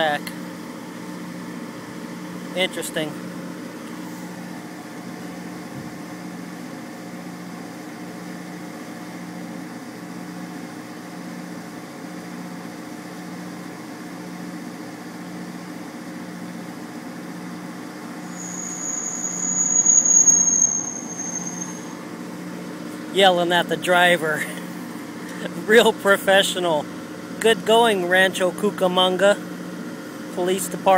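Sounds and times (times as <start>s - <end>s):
high-pitched squeal: 18.2s - 22.0s.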